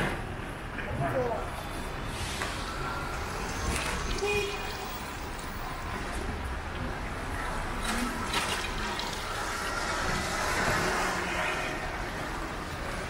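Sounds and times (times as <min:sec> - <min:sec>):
tyres hissing on wet road: 0:01.6 - 0:06.2, 0:07.5 - 0:13.0.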